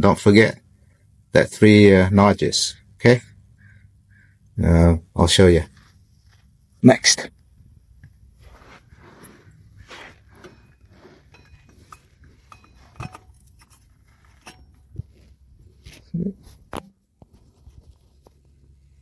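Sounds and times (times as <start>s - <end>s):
metal tools clicking and clinking: 10.3s - 15.0s.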